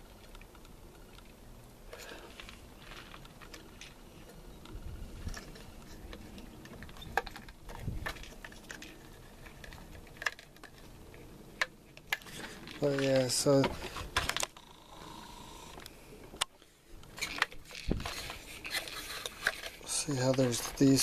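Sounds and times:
plastic parts clicking and rustling: 0:00.0 - 0:21.0.

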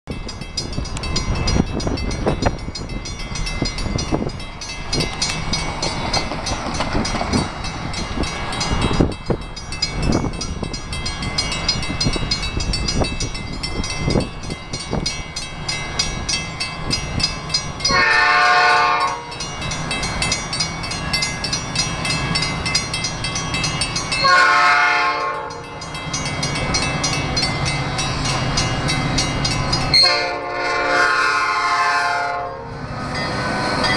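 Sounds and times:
locomotive horn blasts: 0:17.9 - 0:19.4, 0:24.2 - 0:25.7, 0:29.9 - 0:32.8.

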